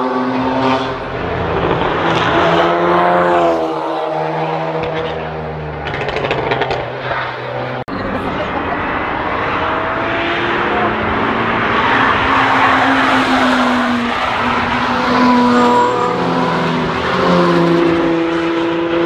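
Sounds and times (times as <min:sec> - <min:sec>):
car engine under load: 0:00.0 - 0:19.0.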